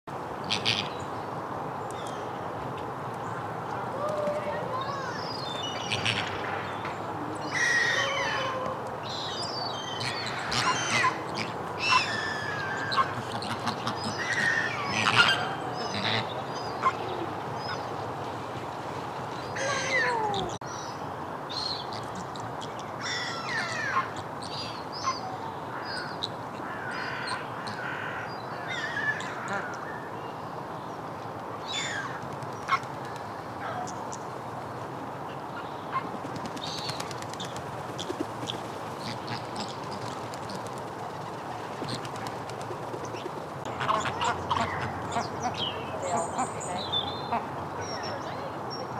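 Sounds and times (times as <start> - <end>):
flamingos honking and calling: 0.4 - 1.0, 5.8 - 6.7, 9.9 - 17.8, 43.6 - 48.3.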